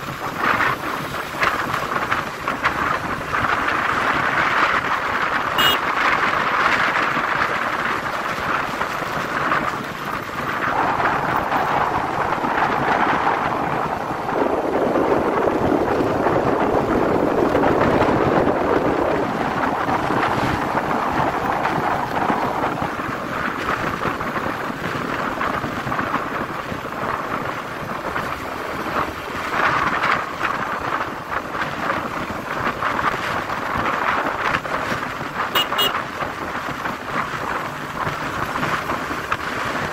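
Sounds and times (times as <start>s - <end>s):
road and traffic noise: 0.0s - 39.9s
wind rushing over microphone: 0.0s - 39.9s.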